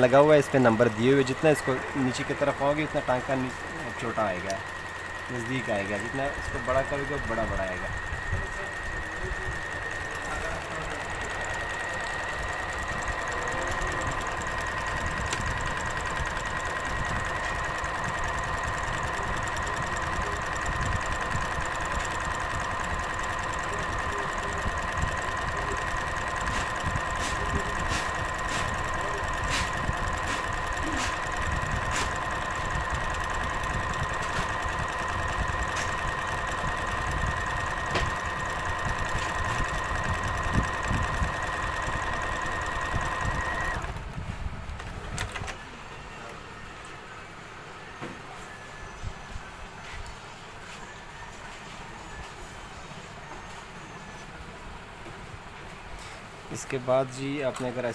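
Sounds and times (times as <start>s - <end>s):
sewing machine running: 0.0s - 44.1s
sharp clicks: 0.6s - 5.6s, 10.1s - 44.0s.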